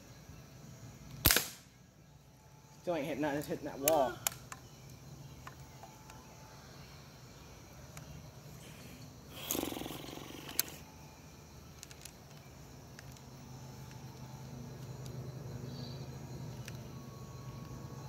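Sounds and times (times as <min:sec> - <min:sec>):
air gun sharp crack: 0:01.2 - 0:01.7.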